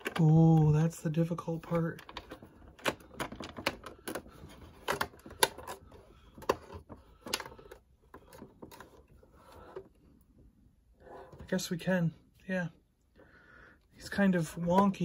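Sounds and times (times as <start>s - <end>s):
hard plastic clicking: 1.9s - 9.0s.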